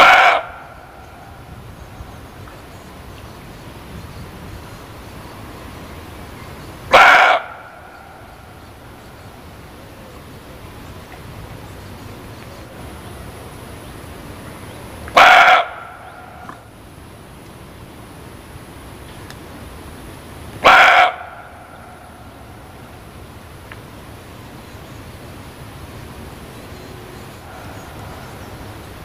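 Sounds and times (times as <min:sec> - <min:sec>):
deer barking: 0:00.0 - 0:01.0, 0:06.9 - 0:08.3, 0:15.1 - 0:16.6, 0:20.6 - 0:22.4
faint steady background noise: 0:00.0 - 0:29.0.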